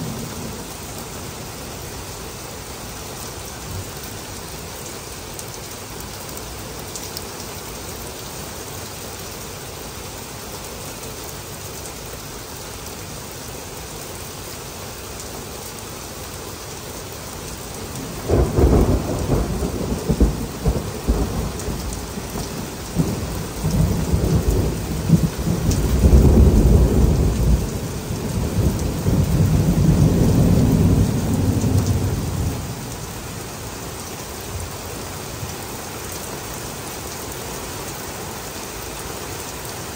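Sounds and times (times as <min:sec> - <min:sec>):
heavy rain falling: 0:00.0 - 0:39.9
thunder rumbling: 0:18.0 - 0:33.0.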